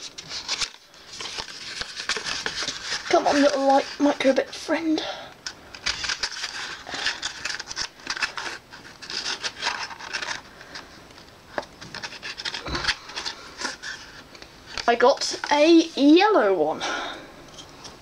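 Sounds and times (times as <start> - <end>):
cardboard scraping and rustling: 0.0 - 4.4, 5.9 - 10.5, 11.7 - 14.3.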